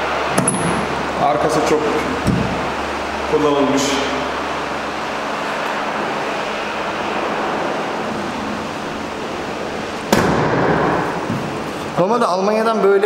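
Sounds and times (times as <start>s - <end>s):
pickup tailgate slamming shut: 10.1s - 11.3s.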